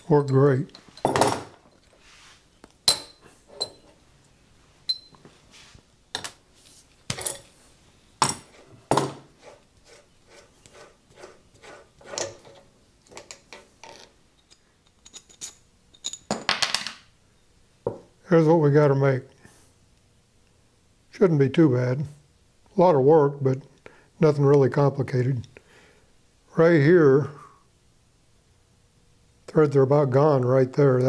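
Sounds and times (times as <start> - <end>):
metal parts clinking and knocking: 0.0 - 2.0, 12.2 - 17.0.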